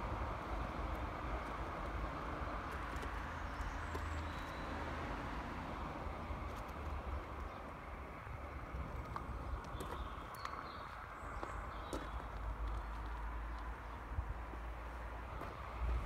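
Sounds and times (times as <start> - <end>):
footsteps on gravel: 8.9 - 13.7.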